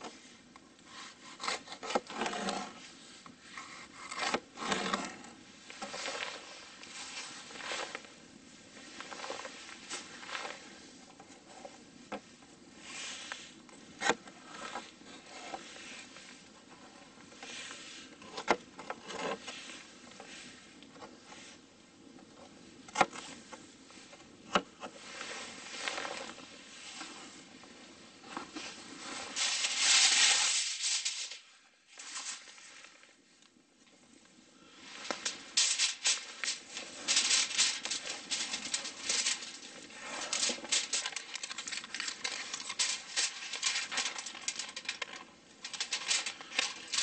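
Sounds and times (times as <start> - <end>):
rustling: 0.0 - 47.0
aluminum foil crinkling: 28.6 - 33.0, 34.8 - 47.0.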